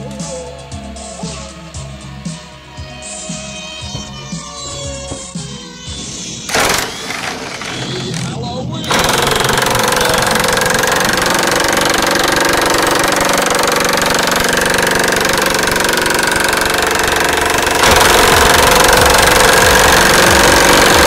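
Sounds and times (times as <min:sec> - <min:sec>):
impact wrench hammering: 0:06.5 - 0:08.3, 0:08.9 - 0:21.0.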